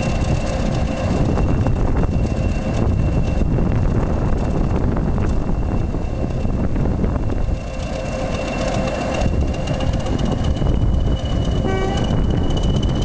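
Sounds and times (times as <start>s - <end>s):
diesel locomotive engine rumble: 0.0s - 13.0s.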